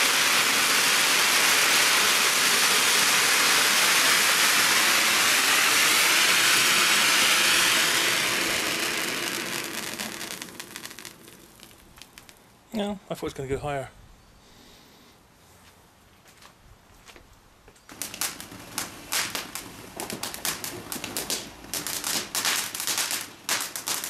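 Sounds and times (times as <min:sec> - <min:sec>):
firework fountain hissing: 0:00.0 - 0:12.6, 0:17.9 - 0:24.0
sharp firework crackles: 0:00.0 - 0:12.6, 0:17.9 - 0:24.0.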